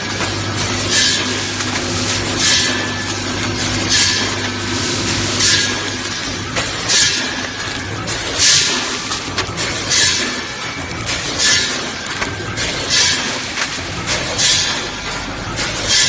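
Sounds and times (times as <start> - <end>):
machine hum: 0.0 - 16.0
packaging machine hissing rush: 0.0 - 16.0.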